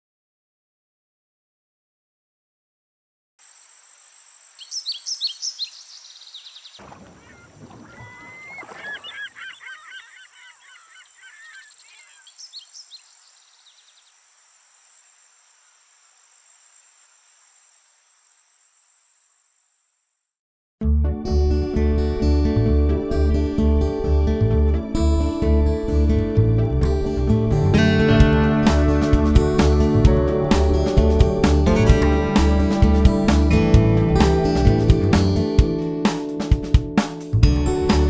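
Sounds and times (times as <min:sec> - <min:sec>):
steady high hiss: 0:03.4 - 0:06.7, 0:11.1 - 0:20.2
high bird chirps: 0:04.6 - 0:14.3
wavering honk-like bird calls: 0:07.0 - 0:12.4.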